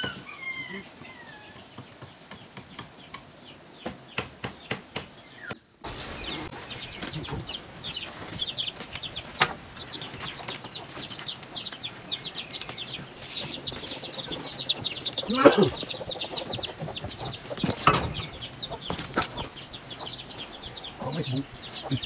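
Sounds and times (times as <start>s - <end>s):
birds chirping: 0.0s - 22.0s.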